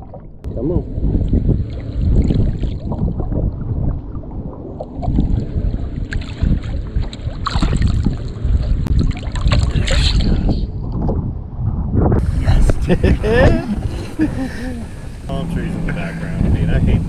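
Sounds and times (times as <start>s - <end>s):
water sloshing: 0.0s - 10.4s
wind rumbling on microphone: 0.0s - 17.0s
fish splashing: 4.6s - 10.0s.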